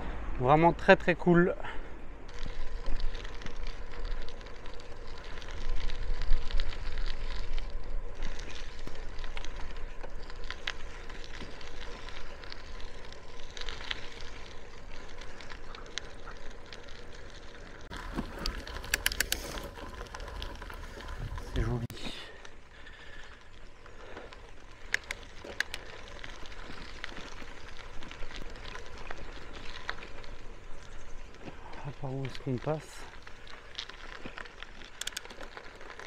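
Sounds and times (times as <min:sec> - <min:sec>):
bicycle clicks and rattles: 0:01.6 - 0:36.0
wind rumble on microphone: 0:20.1 - 0:21.9.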